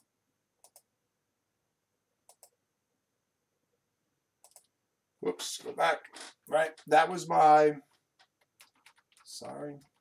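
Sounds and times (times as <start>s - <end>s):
computer mouse clicks: 0.0s - 0.9s, 2.2s - 2.6s, 4.4s - 4.8s, 7.9s - 10.0s.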